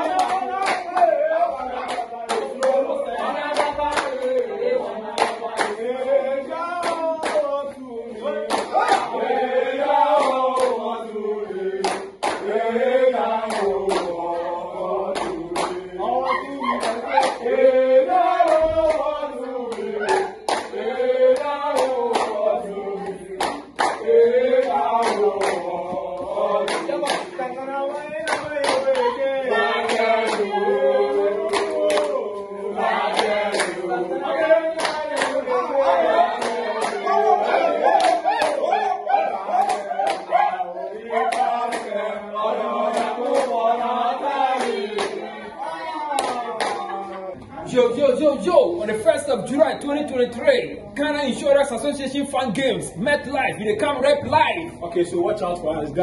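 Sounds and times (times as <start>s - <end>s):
hand claps: 0.0s - 1.2s, 1.8s - 4.5s, 5.1s - 6.0s, 6.8s - 9.2s, 10.1s - 10.8s, 11.8s - 12.6s, 13.4s - 14.3s, 15.1s - 15.8s, 16.4s - 17.6s, 18.4s - 19.1s, 19.7s - 30.5s, 31.4s - 33.8s, 34.7s - 35.4s, 36.4s - 37.0s, 37.9s - 38.6s, 39.6s - 40.3s, 41.2s - 42.0s, 42.9s - 43.6s, 44.5s - 45.2s, 46.2s - 47.0s
group chanting: 0.0s - 49.7s.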